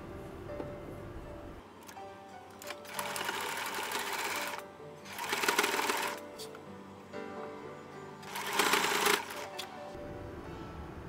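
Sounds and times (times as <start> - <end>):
sewing machine stitching: 2.6 - 6.3, 8.2 - 9.7.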